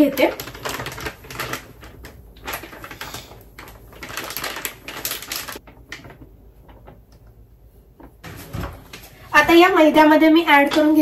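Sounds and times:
plastic bag crinkling: 0.0s - 7.0s.

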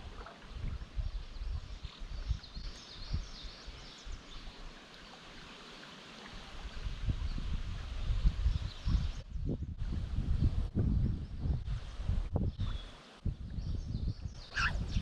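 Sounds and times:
creek water running: 0.0s - 9.2s
small birds chirping: 13.6s - 15.0s.

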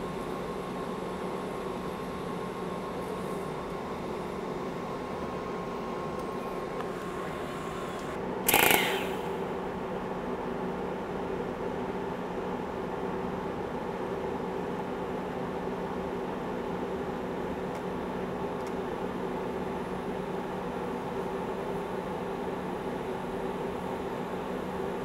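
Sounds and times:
welding arc humming and hissing: 6.4s - 9.5s.

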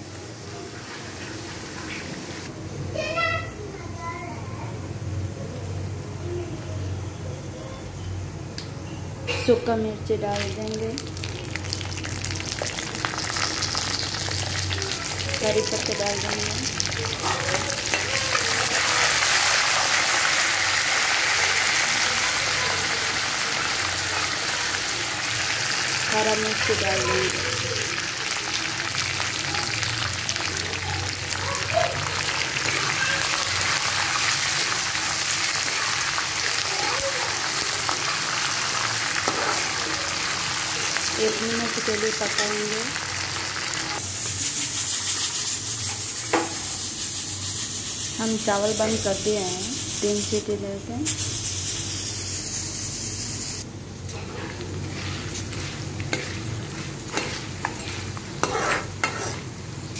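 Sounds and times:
oil sizzling with fine crackles: 0.0s - 2.5s, 9.7s - 59.9s
metal spatula stirring in pan: 54.2s - 59.6s.

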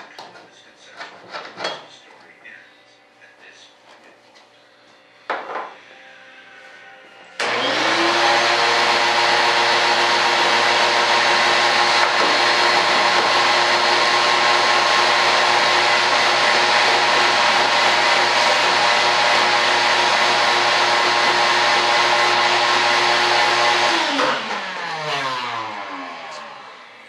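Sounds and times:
shop vacuum motor running: 7.4s - 27.0s.

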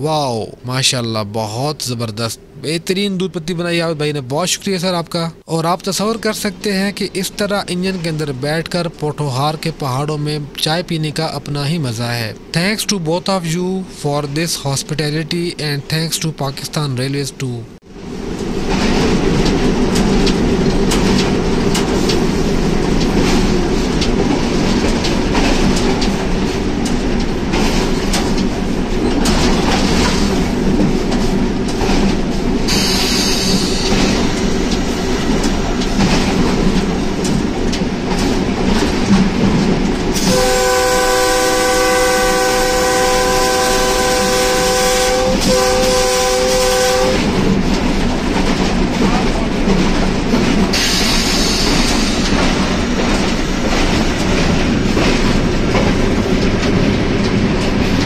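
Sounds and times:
diesel locomotive engine rumble: 0.0s - 58.0s
wheels clicking over rail joints: 18.3s - 41.7s, 42.4s - 58.0s
locomotive horn blast: 40.2s - 47.4s.

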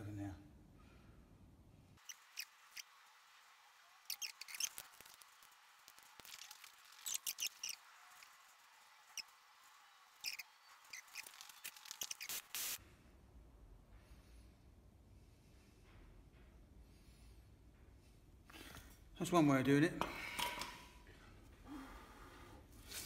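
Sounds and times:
solder crackling and spitting: 4.0s - 8.4s, 10.2s - 12.8s.

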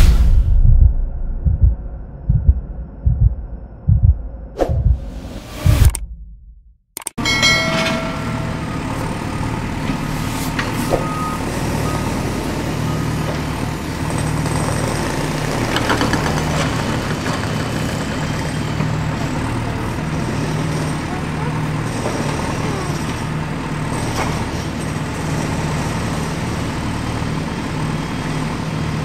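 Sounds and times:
excavator diesel engine running: 7.0s - 29.0s.

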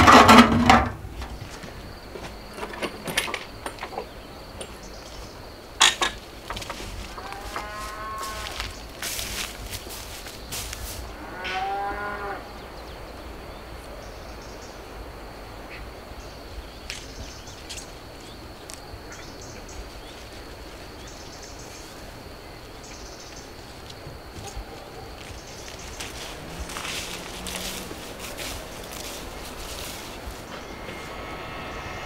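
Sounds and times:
cow mooing: 7.1s - 8.6s, 11.2s - 12.5s.

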